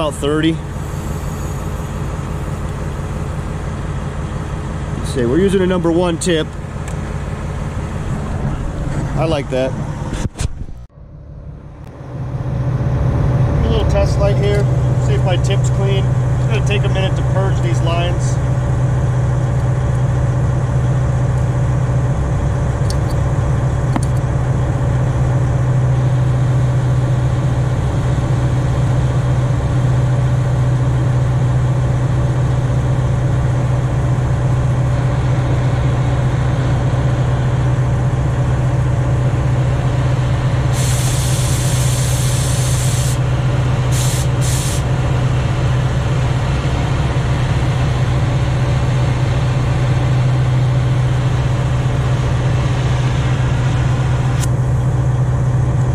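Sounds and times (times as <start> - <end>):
cutting torch hissing: 0.0 - 2.8, 40.7 - 43.3, 43.9 - 44.9
engine idling: 0.0 - 55.9
sharp gas hiss: 0.8 - 2.0, 40.7 - 43.2, 43.9 - 44.9.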